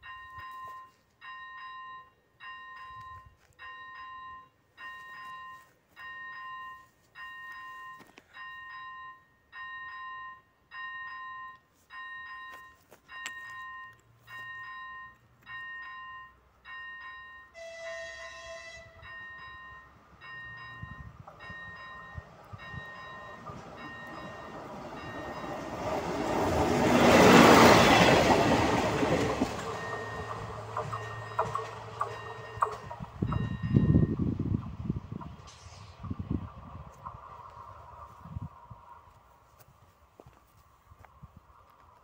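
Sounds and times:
level crossing bell ringing: 0.0s - 26.1s, 27.2s - 34.2s
train rumble: 17.1s - 42.0s
train horn: 17.5s - 19.1s.

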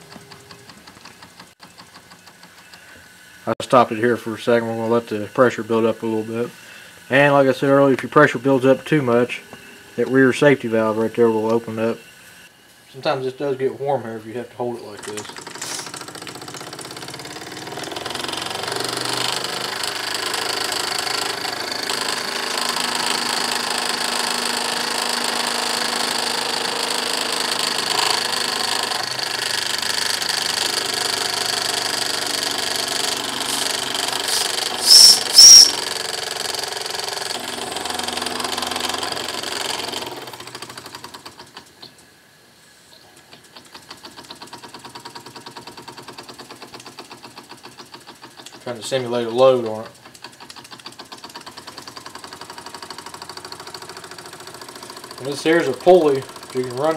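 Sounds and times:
steam whistle blasts: 34.8s - 35.8s
model steam engine chuffing: 43.8s - 56.9s.

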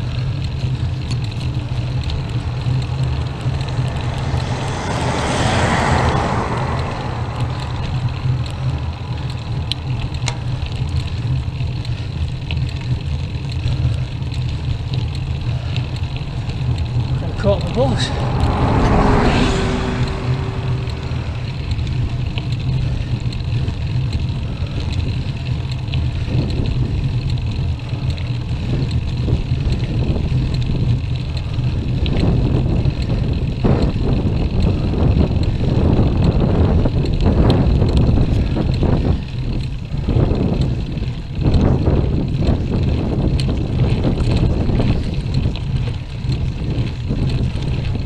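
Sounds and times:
bus passing: 0.0s - 11.7s, 14.7s - 24.6s
wind rumble on microphone: 0.0s - 48.0s.

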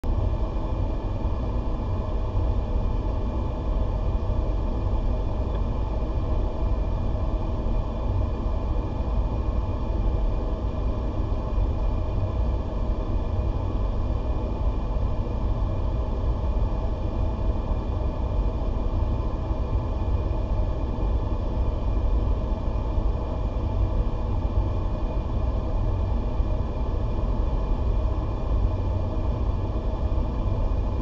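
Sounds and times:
blower rumble and hiss: 0.1s - 31.0s.

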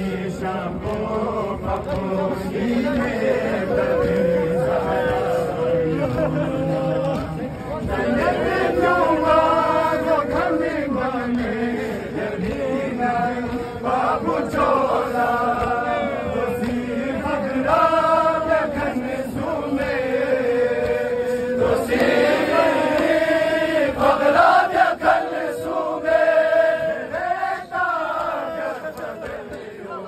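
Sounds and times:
men chanting a lament: 0.0s - 30.0s.

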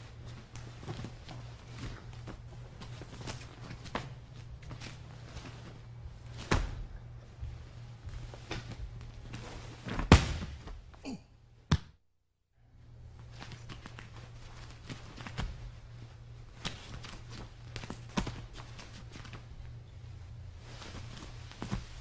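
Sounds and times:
bare feet shuffling on mats: 0.0s - 10.9s, 20.3s - 22.0s
steady low hum: 0.0s - 11.7s, 12.5s - 22.0s
heavy thud on mats: 9.9s - 10.8s.

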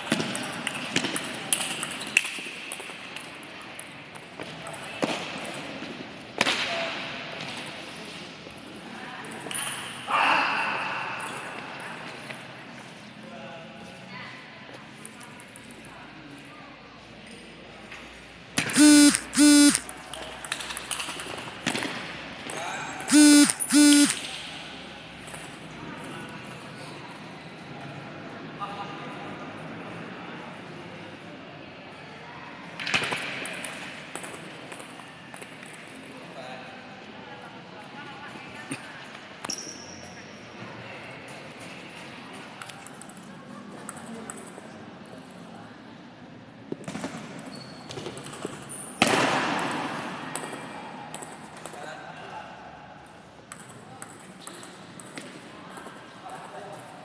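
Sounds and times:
hall background noise: 18.7s - 19.9s, 23.0s - 25.2s.

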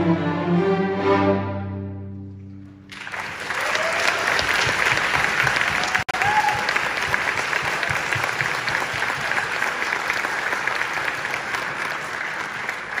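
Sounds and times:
audience applauding: 2.9s - 13.0s.

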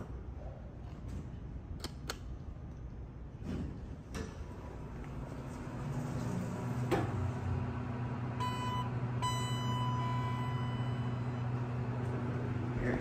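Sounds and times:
low hum: 4.6s - 13.0s
electronic elevator beeps: 8.4s - 11.8s.

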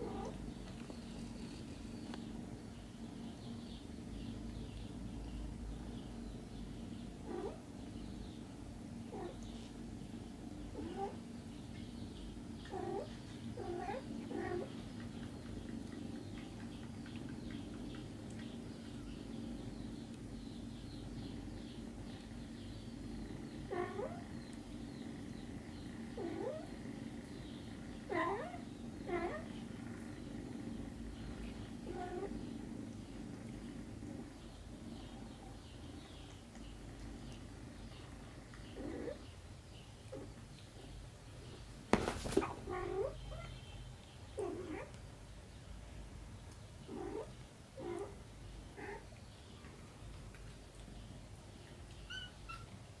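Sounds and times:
cat purring: 0.0s - 2.3s, 7.2s - 7.8s, 9.0s - 11.2s, 12.6s - 39.4s, 42.5s - 43.5s, 44.4s - 45.0s, 46.8s - 49.2s.

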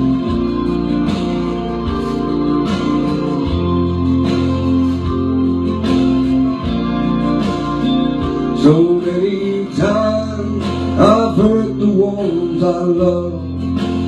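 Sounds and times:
slow guitar chords: 0.0s - 14.0s
steady beat: 0.0s - 14.0s.

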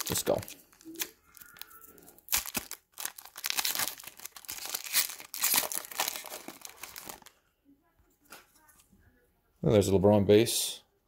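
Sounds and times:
foil wrapper crinkling and tearing: 0.0s - 7.3s.

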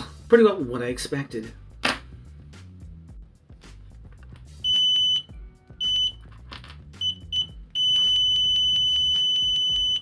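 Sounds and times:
multimeter beeping: 7.0s - 10.0s.

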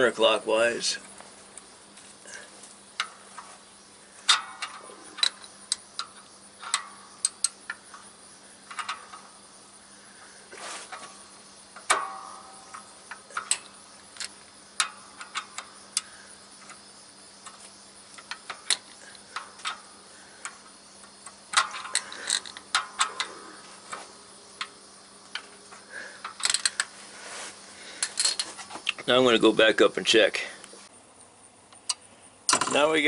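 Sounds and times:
wrench clicking and clanking: 4.2s - 9.3s, 11.8s - 16.8s, 17.4s - 23.3s, 26.2s - 26.9s, 28.0s - 28.5s.

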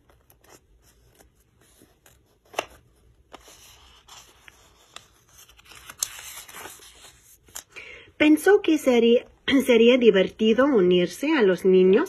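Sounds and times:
paper page turning: 0.0s - 7.8s.

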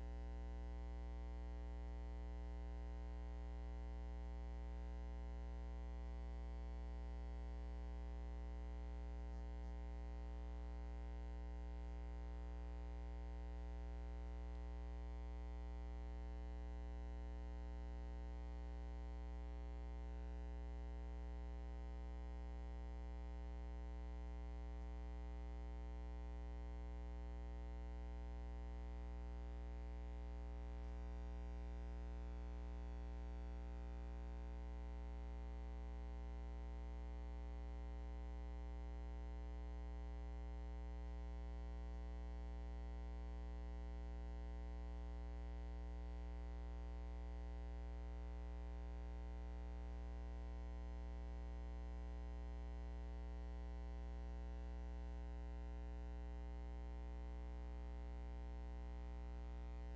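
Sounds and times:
steady electrical hum: 0.0s - 59.9s.

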